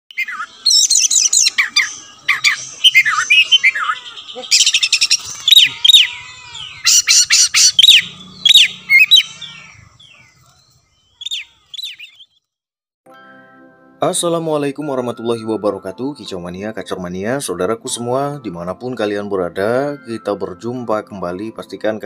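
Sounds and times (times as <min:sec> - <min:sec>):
bird singing whistled song: 0:00.1 - 0:12.4.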